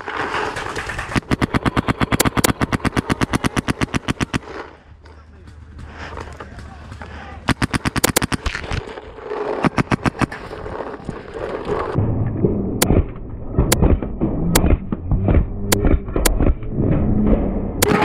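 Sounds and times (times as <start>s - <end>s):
paintball markers firing: 0.4s - 11.1s.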